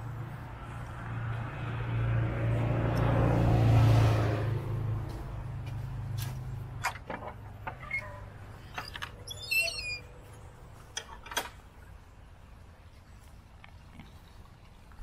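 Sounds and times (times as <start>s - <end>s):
light clicks and knocks: 5.6s - 8.0s.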